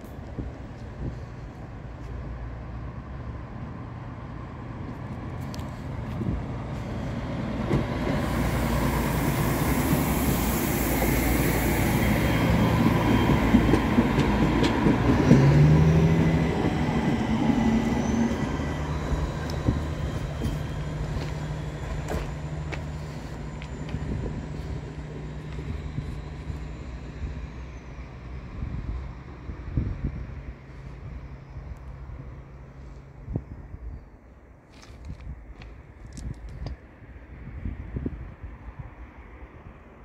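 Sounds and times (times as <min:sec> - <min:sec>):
tram passing: 0:00.0 - 0:34.7, 0:35.4 - 0:40.0.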